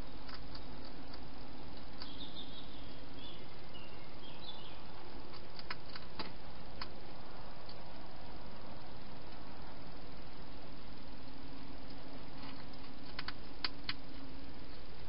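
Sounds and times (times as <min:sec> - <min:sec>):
steady hiss: 0:00.0 - 0:15.0
hedgehog crunching food: 0:00.2 - 0:02.4, 0:05.0 - 0:07.0, 0:11.2 - 0:14.9.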